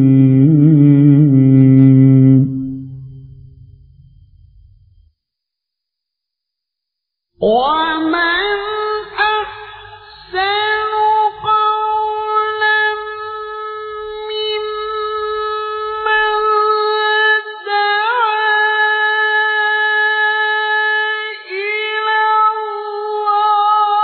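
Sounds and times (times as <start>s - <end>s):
man chanting a long note: 0.0s - 3.6s.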